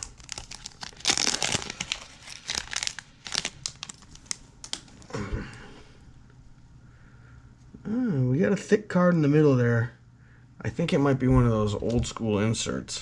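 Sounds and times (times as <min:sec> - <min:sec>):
plastic wrapper crinkling: 0:00.0 - 0:05.1.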